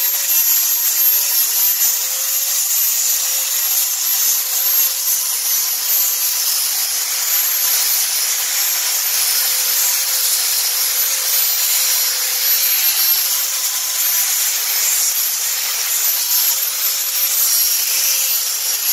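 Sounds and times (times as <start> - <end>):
motor whine: 0.0 - 18.9
sanding belt rasping on wood: 0.0 - 18.9.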